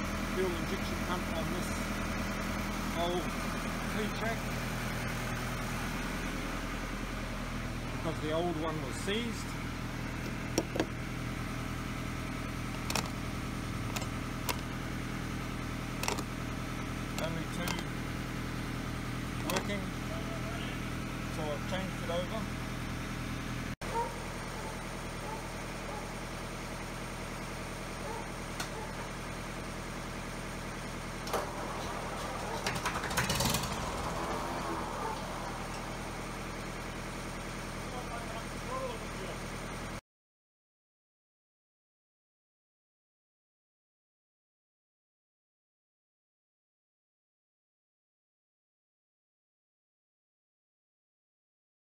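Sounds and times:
low mechanical hum: 0:00.0 - 0:40.0
tractor diesel engine running: 0:00.0 - 0:40.0
sharp clicks: 0:12.8 - 0:13.2, 0:13.9 - 0:14.7, 0:16.0 - 0:16.3.

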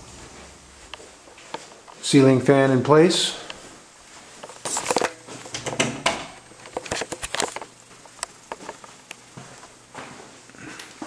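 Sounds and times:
footsteps on tile floor: 0:00.0 - 0:02.1, 0:03.5 - 0:11.0
handheld camera clicks and knocks: 0:04.9 - 0:08.8.

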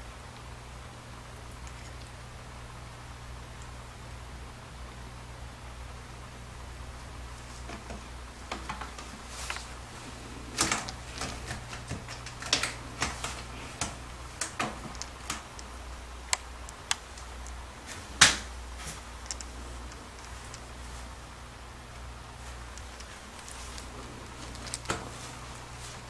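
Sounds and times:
cat claws scratching rope: 0:08.5 - 0:21.2, 0:22.4 - 0:26.0.

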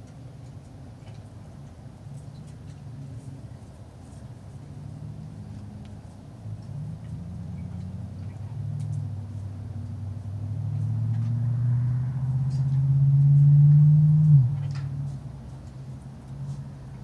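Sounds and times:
vehicle driving past: 0:04.8 - 0:15.4.

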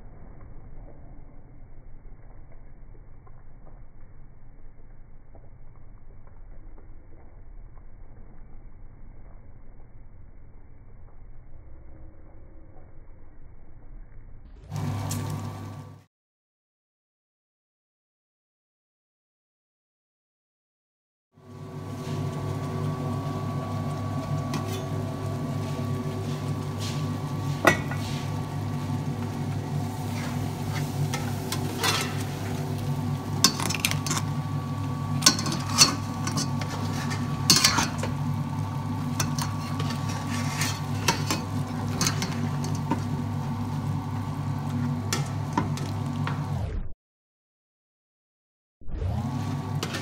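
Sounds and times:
steady mechanical hum: 0:21.4 - 0:46.9
metal utensil scraping a pot: 0:30.1 - 0:32.4, 0:35.2 - 0:38.2, 0:39.1 - 0:42.9.

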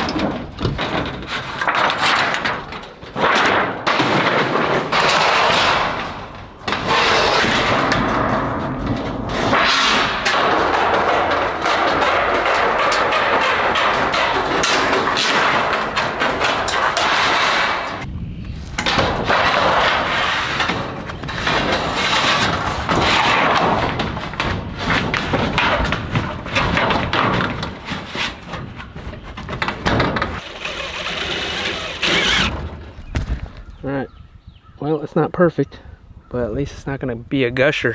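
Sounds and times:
knocks and thumps: 0:00.0 - 0:18.1, 0:18.7 - 0:33.8
metal roofing scraping and rattling: 0:00.0 - 0:34.2.

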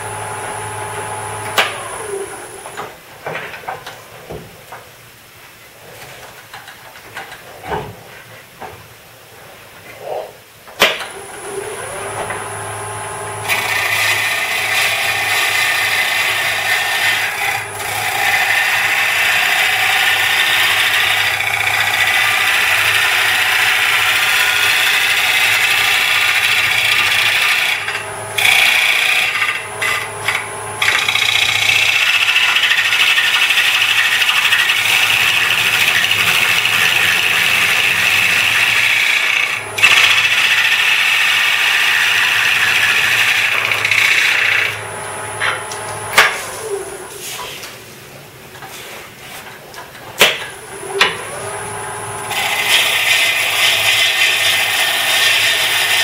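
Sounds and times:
lathe tool cutting wood: 0:00.0 - 0:02.8, 0:11.1 - 0:47.0, 0:50.2 - 0:56.0
lathe low hum: 0:00.0 - 0:03.0, 0:11.1 - 0:48.2, 0:50.6 - 0:56.0.

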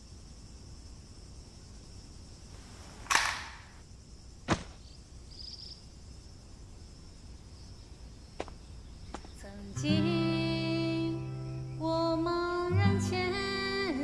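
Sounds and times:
toy pistol cracks: 0:03.1 - 0:03.7.

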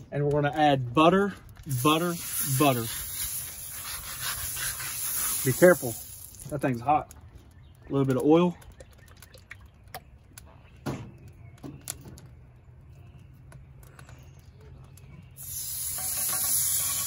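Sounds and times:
fish sizzling on a griddle: 0:01.7 - 0:06.5, 0:15.4 - 0:17.0.

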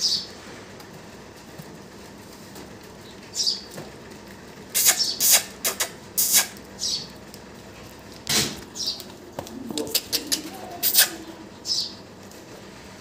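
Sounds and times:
small birds chirping: 0:00.0 - 0:00.4, 0:03.0 - 0:03.8, 0:04.7 - 0:07.2, 0:08.7 - 0:12.1
goats rustling and knocking: 0:06.6 - 0:13.0.

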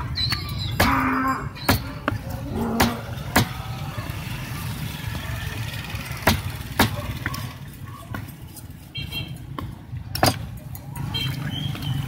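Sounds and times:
cleaver chopping on wooden block: 0:01.7 - 0:02.2, 0:06.2 - 0:07.0.

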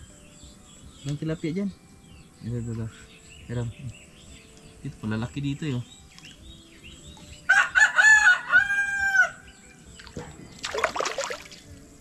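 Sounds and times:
rooster crowing: 0:07.5 - 0:09.5
water splash: 0:10.0 - 0:11.7.

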